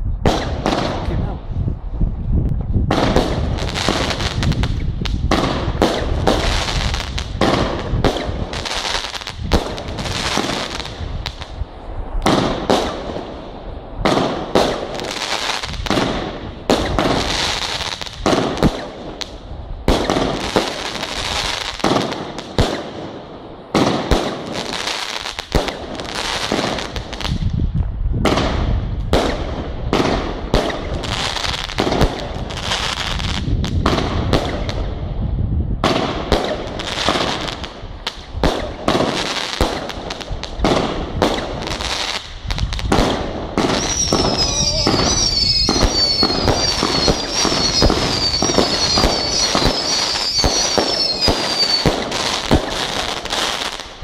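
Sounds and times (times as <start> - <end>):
crackling firework glitter: 36.1 - 54.0
firework launch bangs: 42.2 - 53.2.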